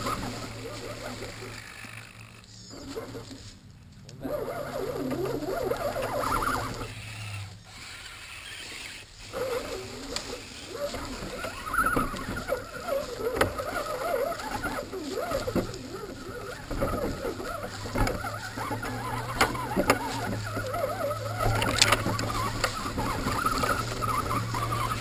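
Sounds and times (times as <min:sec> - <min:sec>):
electric motor whining: 0:00.0 - 0:25.0
toy truck knocking over sticks: 0:10.4 - 0:25.0.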